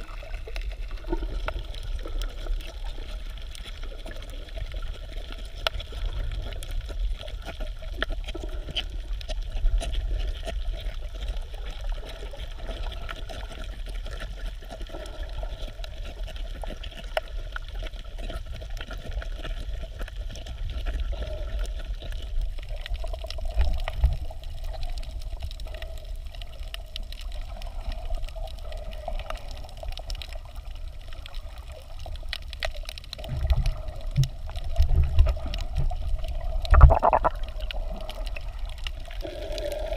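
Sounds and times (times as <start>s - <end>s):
muffled underwater sloshing: 0.0s - 39.9s
water surges: 0.0s - 39.9s
low underwater rumble: 27.5s - 39.9s.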